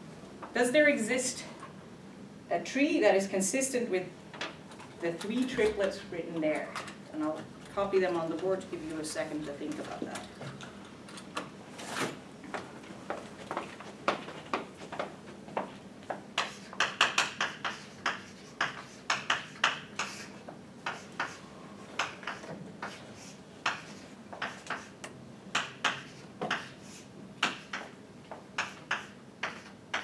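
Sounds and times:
chalk tapping and scratching on chalkboard: 0:16.4 - 0:30.0.

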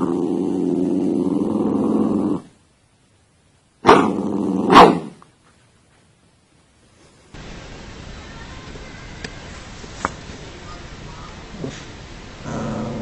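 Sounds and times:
dog growling: 0:00.0 - 0:02.5, 0:03.9 - 0:05.1, 0:11.5 - 0:13.0.

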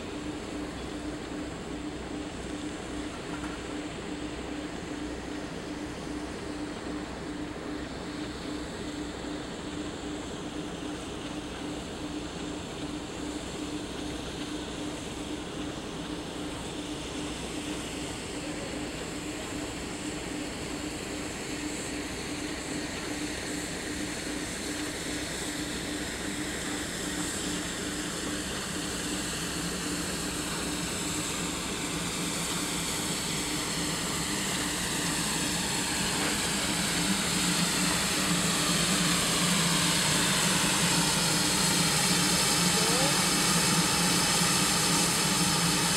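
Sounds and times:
steam locomotive hum: 0:00.0 - 0:45.9
steam hissing: 0:18.4 - 0:45.9.

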